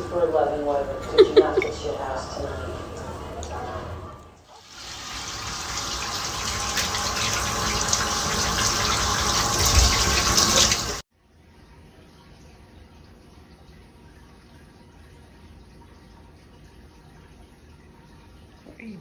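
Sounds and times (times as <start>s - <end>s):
shower water spraying: 4.5s - 11.0s.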